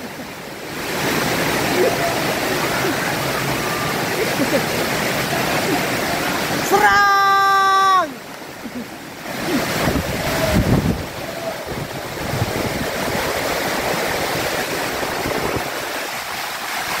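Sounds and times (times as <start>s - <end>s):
driving rain: 0.0s - 17.0s
strong wind: 9.2s - 17.0s
wind buffeting microphone: 9.3s - 16.4s.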